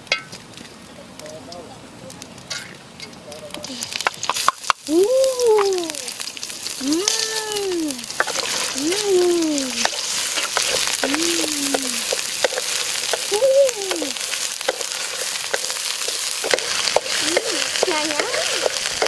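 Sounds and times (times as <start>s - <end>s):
chili paste sizzling in a wok: 0.0s - 19.0s
wooden spatula scraping: 8.0s - 9.0s, 9.6s - 13.3s, 14.2s - 19.0s.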